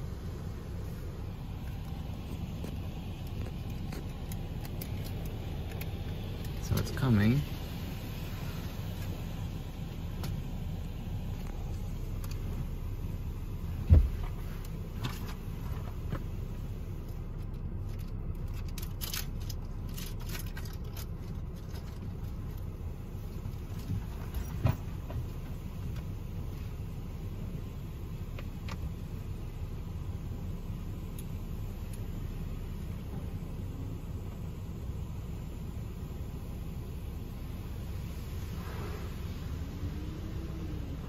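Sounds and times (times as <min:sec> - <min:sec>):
car wash low rumble: 0:00.0 - 0:41.0.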